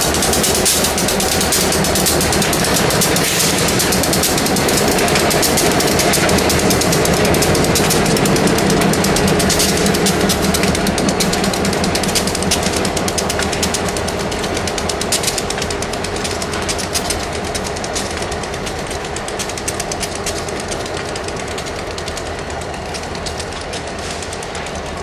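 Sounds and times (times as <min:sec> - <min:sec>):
diesel locomotive rumble: 0:00.0 - 0:25.0
freight train clatter: 0:00.0 - 0:25.0.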